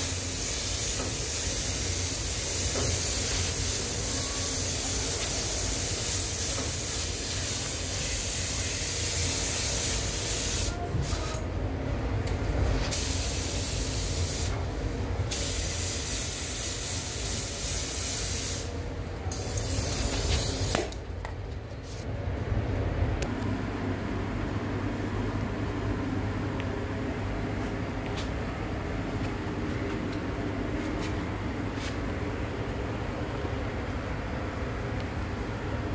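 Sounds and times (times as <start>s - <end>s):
spray gun hissing: 0.0s - 10.7s, 12.9s - 14.5s, 15.3s - 18.8s.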